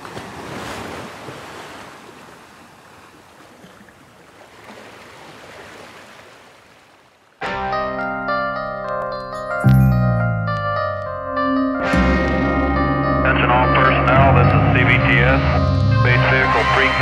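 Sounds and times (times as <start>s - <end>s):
music: 7.4s - 17.0s.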